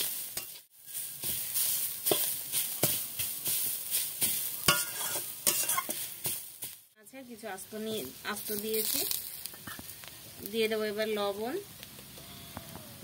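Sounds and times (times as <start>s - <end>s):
spatula scraping and knocking pan: 0.0s - 6.8s
greens sizzling in a wok: 0.0s - 13.0s.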